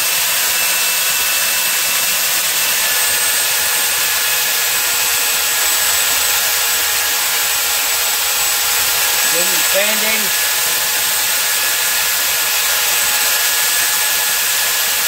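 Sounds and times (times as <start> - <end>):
belt sander sanding wood: 0.0 - 15.0.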